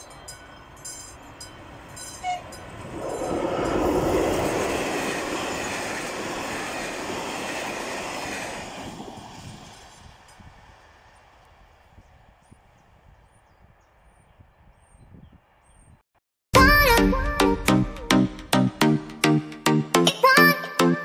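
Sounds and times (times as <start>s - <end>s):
crossing signal bell ringing: 0.0s - 3.8s
train rumbling on rails: 0.0s - 14.6s
train horn toot: 2.1s - 2.6s.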